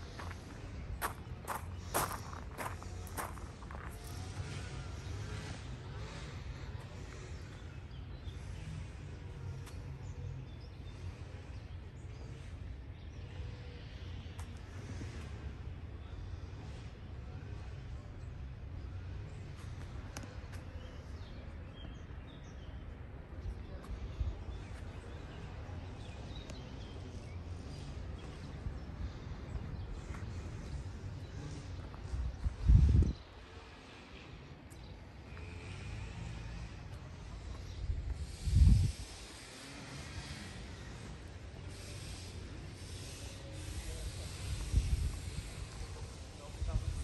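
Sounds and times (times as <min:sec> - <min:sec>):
footsteps: 0:00.0 - 0:04.3.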